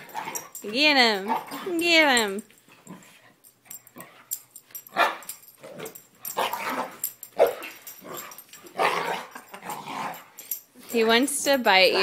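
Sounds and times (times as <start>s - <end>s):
puppy growling and barking: 4.9s - 10.3s.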